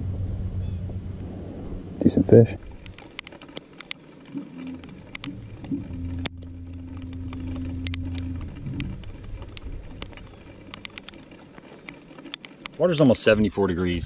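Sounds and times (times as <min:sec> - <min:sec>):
electric boat motor humming: 0:00.0 - 0:12.8
light clicks and ticks: 0:02.6 - 0:12.8.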